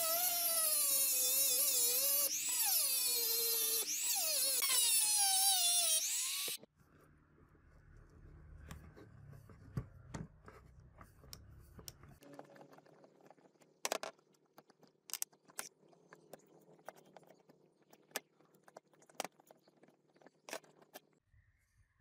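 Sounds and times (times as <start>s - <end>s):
rotary tool grinding metal: 0.0s - 6.6s.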